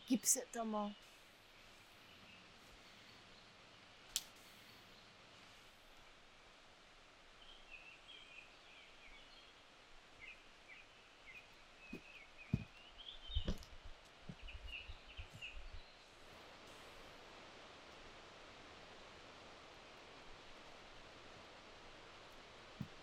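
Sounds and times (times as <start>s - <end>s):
small birds chirping: 7.4s - 16.3s
soft thuds: 11.9s - 14.5s.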